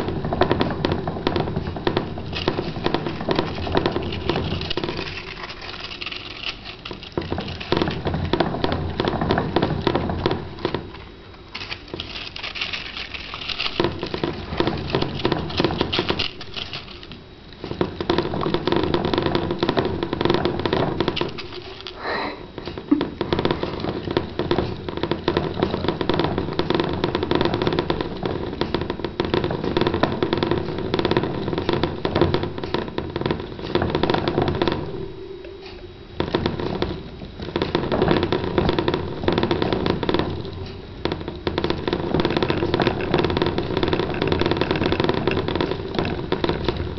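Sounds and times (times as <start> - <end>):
hamster wheel rattling: 2.2 - 10.7, 11.5 - 19.4, 20.7 - 22.0, 42.2 - 46.9.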